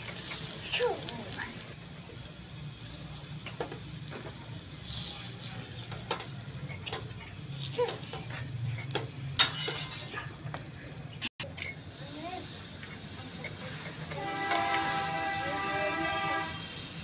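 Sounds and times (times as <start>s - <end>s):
faint sizzling: 0.0s - 17.0s
utensils clinking on plate: 5.9s - 10.4s.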